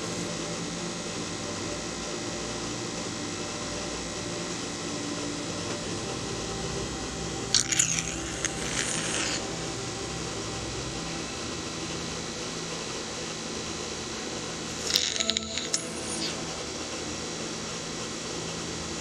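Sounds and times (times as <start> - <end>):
microneedling pen humming: 0.0 - 19.0
scratchy rubbing on skin: 7.6 - 9.4.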